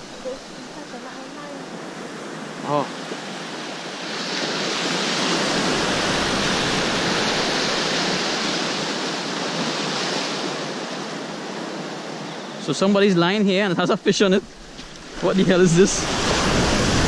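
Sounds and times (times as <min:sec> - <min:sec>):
ocean wave hissing: 0:00.0 - 0:08.8, 0:13.8 - 0:17.0.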